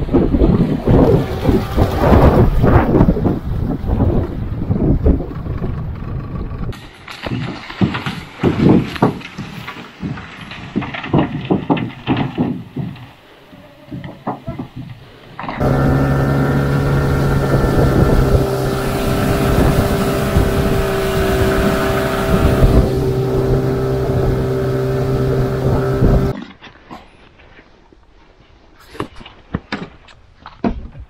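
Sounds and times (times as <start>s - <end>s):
wind noise: 0.0s - 7.6s, 8.2s - 26.4s
water noise: 0.0s - 10.5s, 13.1s - 26.4s
outboard motor running: 0.8s - 6.7s, 15.6s - 26.3s.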